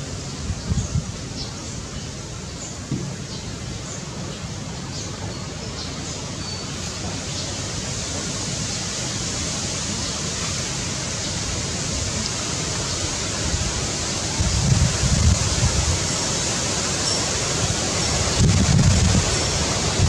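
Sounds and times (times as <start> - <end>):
wind hiss: 0.0 - 20.0
wind gusts buffeting microphone: 0.4 - 1.4, 13.4 - 16.9, 17.6 - 20.0.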